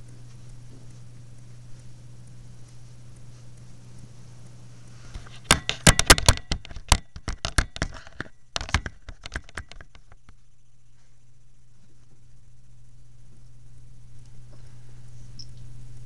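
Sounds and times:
camera handling clicks and knocks: 5.2s - 10.2s.

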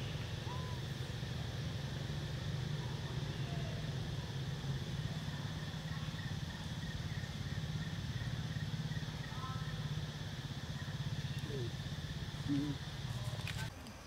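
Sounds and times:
motor idling hum: 0.0s - 13.7s
faint high chirps: 0.1s - 0.9s.

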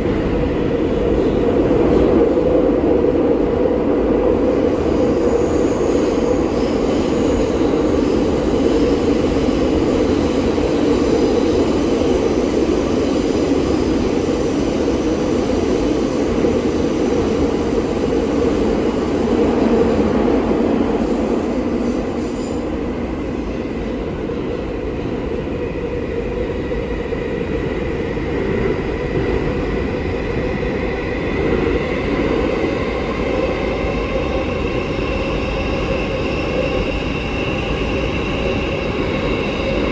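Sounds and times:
train wheels rumbling on rail: 0.0s - 39.9s.

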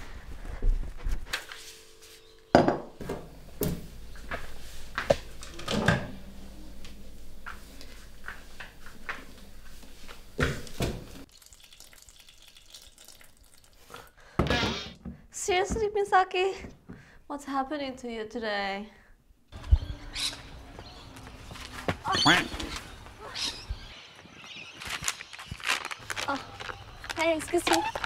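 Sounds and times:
steady low hum: 0.0s - 10.4s
water pouring from kettle: 11.3s - 14.2s.

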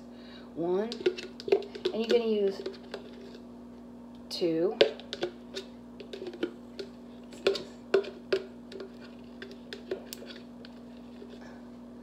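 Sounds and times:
spoon scraping plastic jar: 0.9s - 3.4s, 4.8s - 11.4s.

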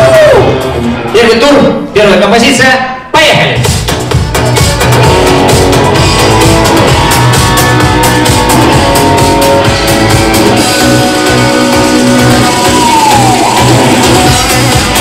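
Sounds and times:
drums: 0.0s - 1.8s, 3.3s - 15.0s
electric guitar rock melody: 4.7s - 15.0s.

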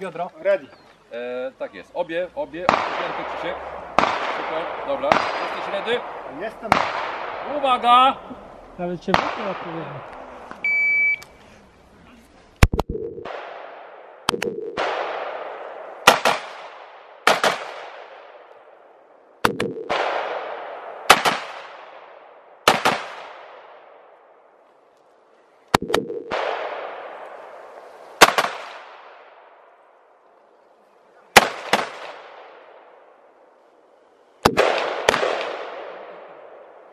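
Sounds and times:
rifle shots with echo: 2.6s - 8.0s, 9.0s - 10.1s, 13.2s - 18.8s, 19.4s - 24.2s, 25.7s - 27.5s, 28.2s - 29.6s, 31.4s - 33.0s, 34.4s - 36.8s.

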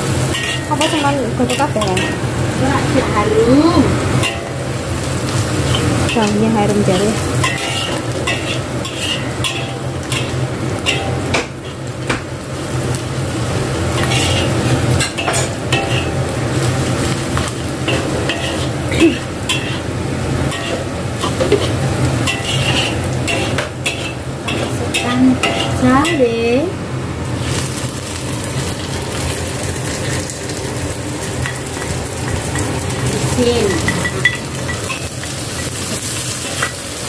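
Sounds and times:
food sizzling in oil: 0.0s - 37.0s
metal spatula scraping a pan: 0.2s - 2.2s, 5.6s - 11.8s, 14.0s - 16.2s, 17.9s - 19.9s, 20.5s - 26.3s.

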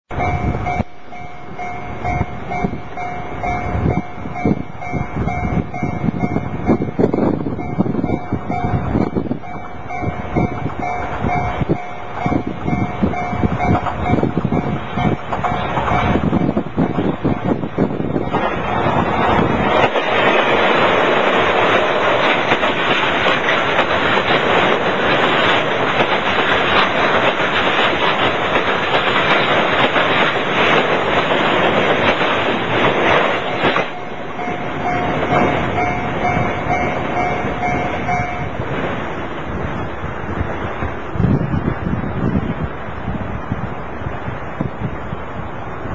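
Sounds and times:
steady ringing tone: 0.1s - 18.4s, 33.4s - 38.6s
diesel locomotives approaching: 0.1s - 45.9s
freight train wagons rolling past: 0.1s - 45.9s
wind buffeting microphone: 0.1s - 45.9s.

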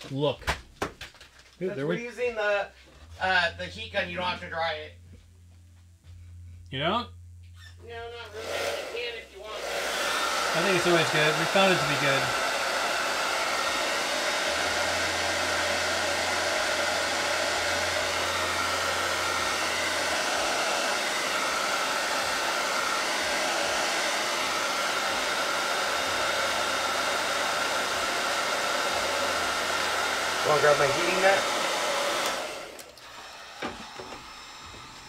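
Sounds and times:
heat gun blowing hot air: 8.3s - 35.0s.

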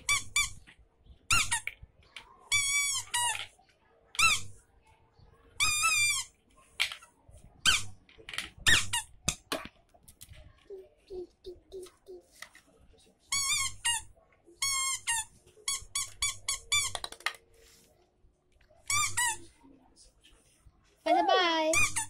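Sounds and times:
rubber squeeze toy squeaking: 0.0s - 0.7s, 1.3s - 1.8s, 2.5s - 3.5s, 4.2s - 4.5s, 5.6s - 6.3s, 7.6s - 8.0s, 8.6s - 9.2s, 13.3s - 17.2s, 18.9s - 19.4s, 21.7s - 22.0s.

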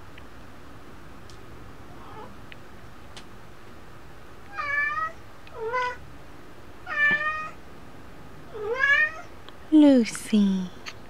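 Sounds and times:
cat meowing: 4.5s - 6.0s, 6.8s - 7.6s, 8.5s - 9.3s.

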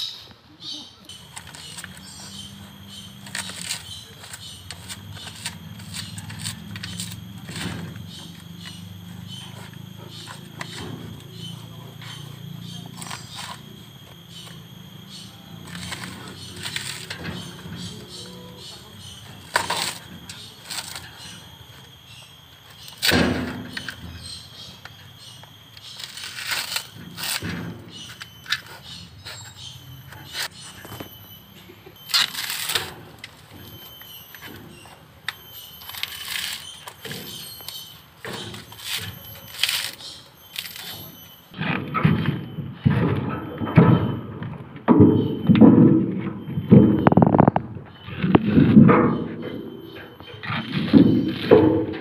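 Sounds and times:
coconut husk tearing: 1.1s - 31.3s, 32.0s - 41.8s.

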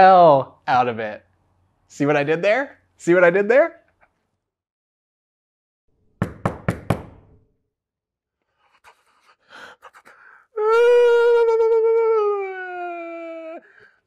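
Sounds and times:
faint breathing: 8.4s - 10.6s
man wailing: 10.6s - 13.6s.

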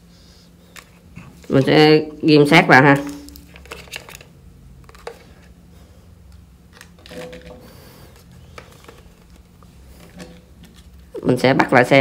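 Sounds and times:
steady low hum: 0.0s - 12.0s
plastic goggles clicks and rustles: 3.0s - 5.5s, 6.7s - 11.1s.

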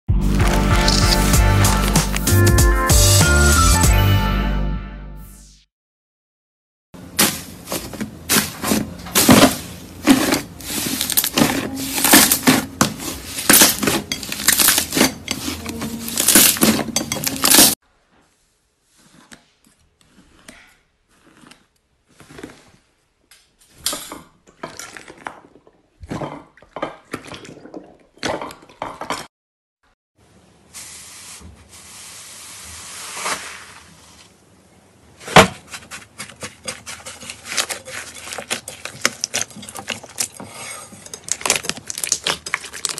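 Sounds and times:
foil crinkling: 0.2s - 2.4s, 7.2s - 17.8s, 35.7s - 42.9s.

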